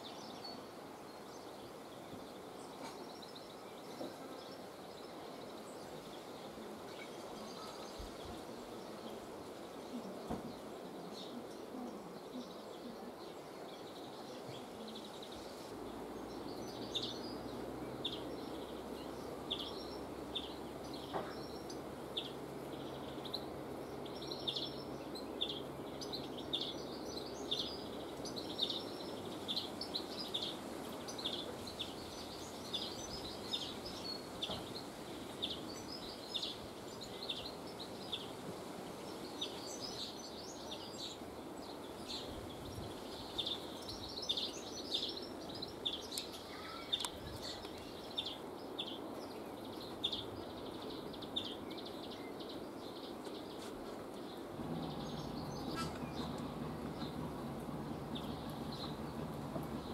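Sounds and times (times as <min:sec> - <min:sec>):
low background noise: 0:00.0 - 0:59.9
sparrows chirping: 0:00.0 - 0:59.9.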